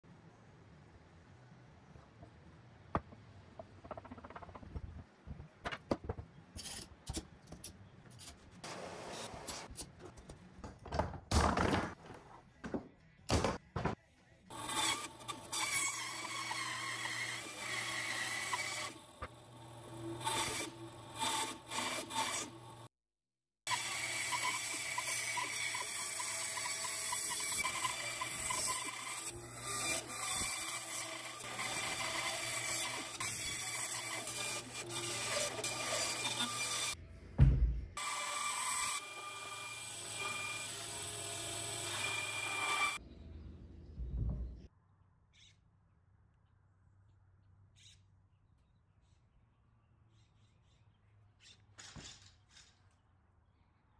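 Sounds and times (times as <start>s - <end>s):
wooden boards knocking and rubbing: 2.9s - 6.3s
bandsaw cutting wood: 23.7s - 37.0s, 38.0s - 43.0s.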